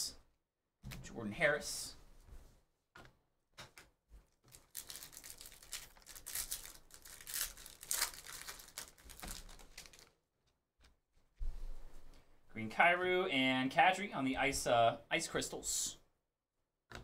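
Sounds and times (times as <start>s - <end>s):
wrapper crinkling and tearing: 4.4s - 10.2s.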